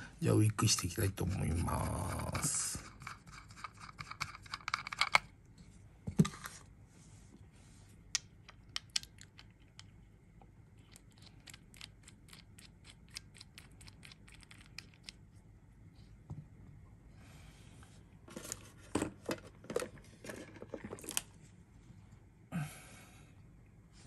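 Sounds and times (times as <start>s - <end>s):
fingers clicking and rustling: 2.8s - 5.3s, 8.2s - 10.0s, 10.8s - 15.2s.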